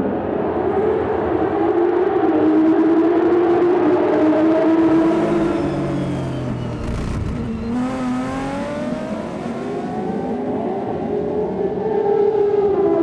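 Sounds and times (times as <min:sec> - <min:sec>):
racing car engines wailing: 0:00.0 - 0:13.0
car engine revving up: 0:03.9 - 0:11.6.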